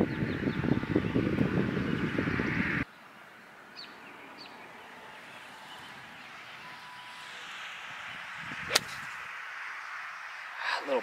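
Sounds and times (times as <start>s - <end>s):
bird chirping: 0.0s - 7.7s
faint outdoor ambience: 0.0s - 11.0s
golf club striking ball: 8.7s - 9.2s.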